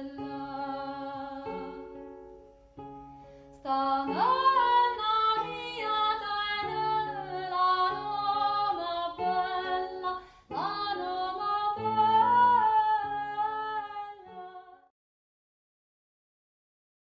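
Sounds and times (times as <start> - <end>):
woman singing folk song: 0.0 - 2.0, 3.5 - 14.9.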